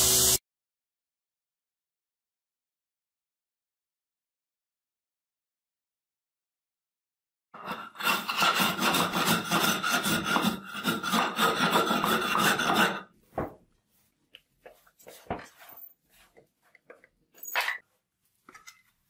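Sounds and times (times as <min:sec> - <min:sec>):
hand scrubbing rusty steel: 0:07.6 - 0:13.1.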